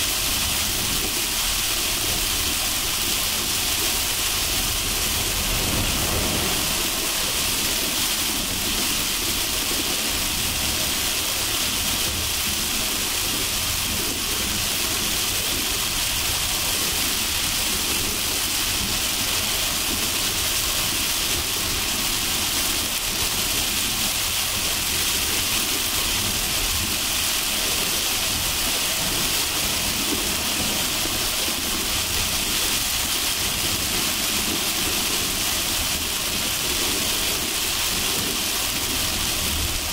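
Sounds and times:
rain hissing on car: 0.0 - 39.9.

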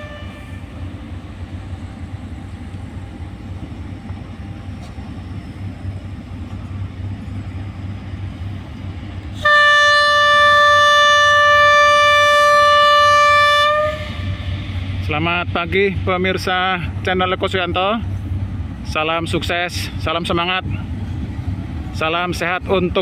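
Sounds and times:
locomotive horn blast: 0.0 - 0.8, 9.4 - 14.6
locomotive rumbling: 0.0 - 23.0.

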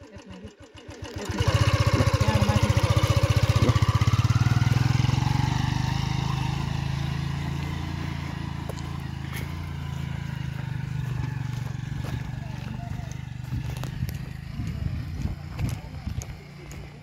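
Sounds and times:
motorcycle engine pulling away: 0.0 - 17.0.

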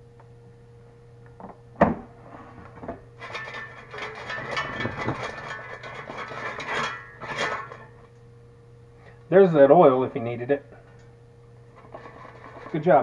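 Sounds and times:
fries crackling and rattling: 2.8 - 8.0, 11.7 - 13.0.

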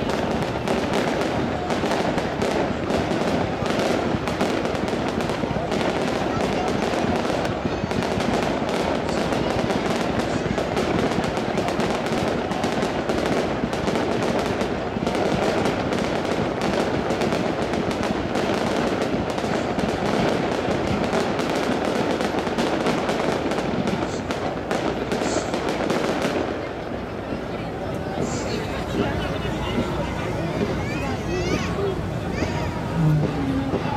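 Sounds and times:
fireworks bursting and crackling: 0.0 - 33.9.

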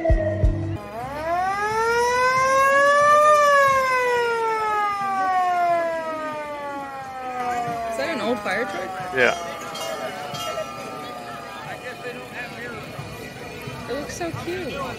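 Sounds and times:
fire engine siren winding: 0.8 - 12.4.

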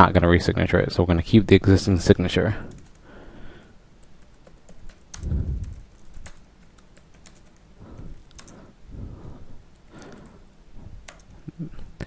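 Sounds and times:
keyboard typing: 2.7 - 3.0, 4.0 - 8.6, 9.7 - 10.4, 11.0 - 11.6.

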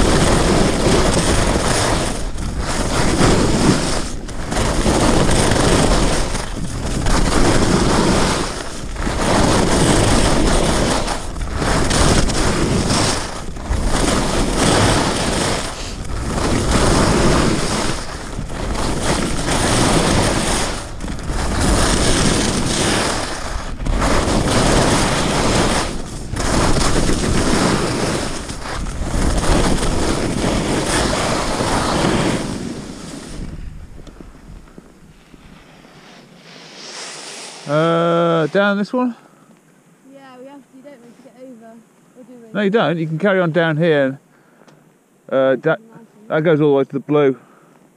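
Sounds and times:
wind on microphone: 0.0 - 35.8
skis scraping on crunchy snow: 0.0 - 39.1.

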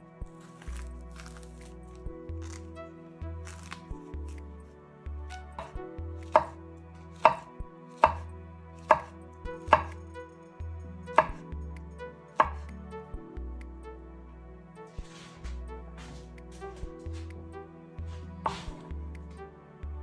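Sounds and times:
knife chopping on cutting board: 5.6 - 6.6, 7.2 - 8.2, 8.8 - 9.1, 9.7 - 10.0, 12.4 - 12.6, 18.4 - 18.8.

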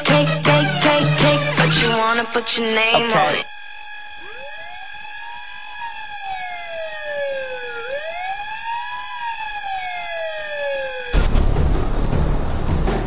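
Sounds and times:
loud music: 0.0 - 3.4
siren wail: 1.8 - 11.2
steady held tone: 2.0 - 6.3.

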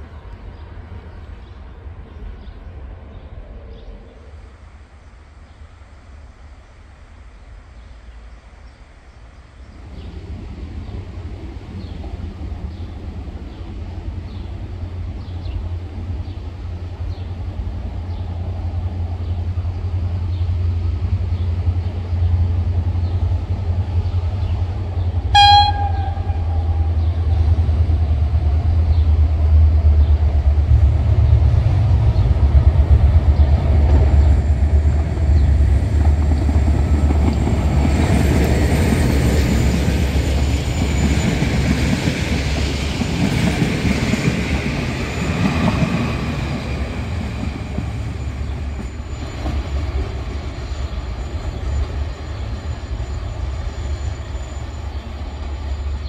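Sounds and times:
diesel locomotive engine rumble: 9.5 - 56.0
train wheels on rails: 9.8 - 56.0
train horn toot: 25.3 - 27.4.

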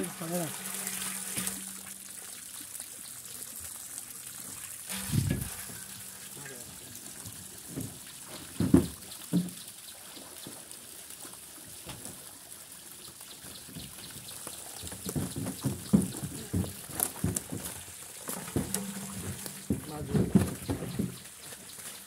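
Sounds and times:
water trickling and splashing: 0.0 - 22.0
loud thumps: 4.9 - 6.3, 18.5 - 21.2
knocks and thuds of baskets: 7.3 - 9.6, 14.8 - 21.4.

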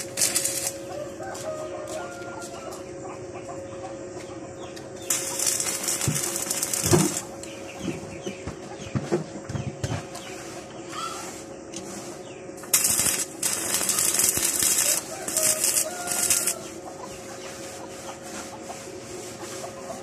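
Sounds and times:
welding arc crackling hiss: 0.0 - 2.4, 5.1 - 7.5, 12.6 - 16.7
steady hum: 0.0 - 20.0.

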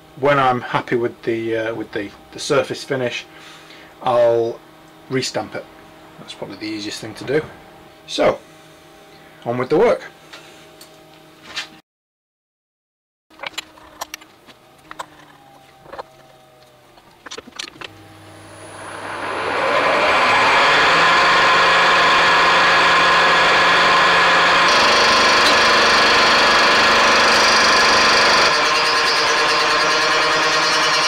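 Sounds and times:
milling machine motor: 17.8 - 31.0
fly cutter cutting metal: 23.1 - 31.0.

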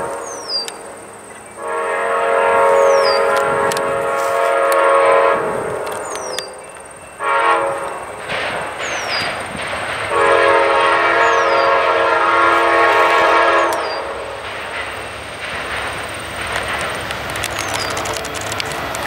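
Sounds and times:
train air horn: 0.0 - 0.7, 1.6 - 6.3, 7.2 - 8.1, 10.1 - 14.4
train rumble: 0.0 - 19.0.

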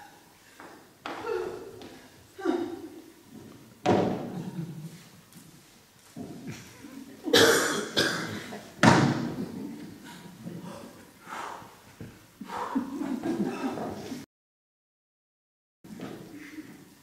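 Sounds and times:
thumps on wooden stage: 3.8 - 4.6, 8.8 - 9.7
breathy effort noises: 9.8 - 12.9.

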